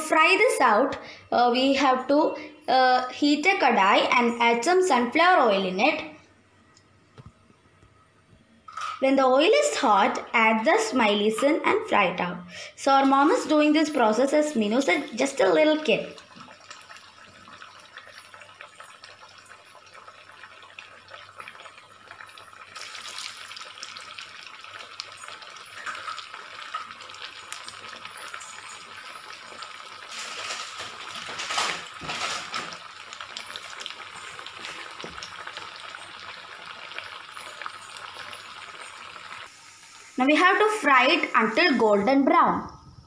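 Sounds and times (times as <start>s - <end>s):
potatoes sizzling in oil: 12.8s - 42.6s.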